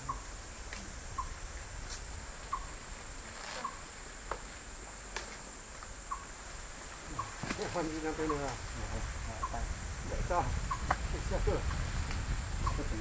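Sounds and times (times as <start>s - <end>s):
insects droning: 0.0s - 13.0s
faint chirping notes: 6.0s - 6.4s.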